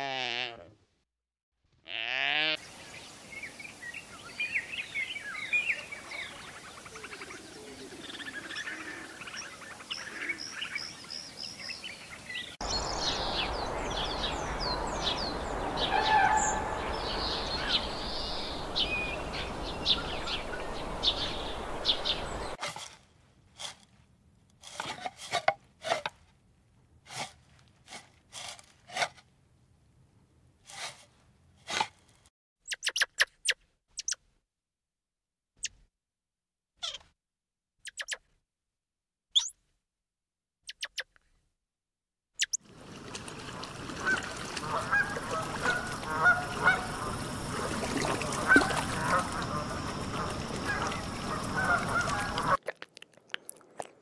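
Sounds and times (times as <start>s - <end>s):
outdoor background noise: 1.7s - 34.3s, 42.4s - 54.0s
small birds chirping: 2.7s - 22.6s, 32.7s - 34.2s, 37.8s - 38.2s, 39.4s - 39.6s, 40.7s - 41.1s, 42.4s - 42.6s, 44.0s - 52.6s.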